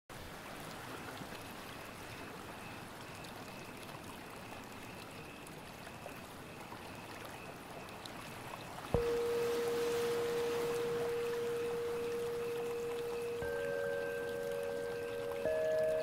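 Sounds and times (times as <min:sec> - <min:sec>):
faint rushing noise: 0:09.0 - 0:16.0
thin high tone: 0:09.0 - 0:16.0.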